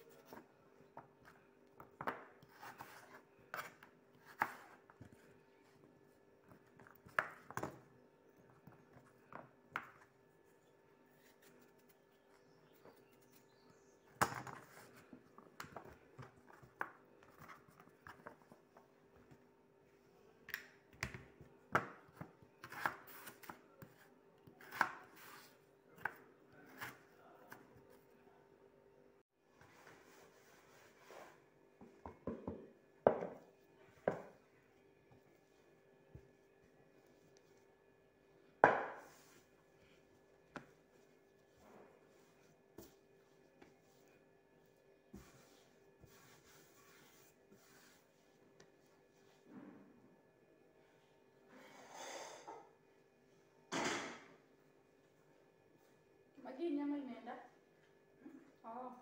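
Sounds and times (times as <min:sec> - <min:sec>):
knife slicing potatoes: 0:22.6 - 0:27.6.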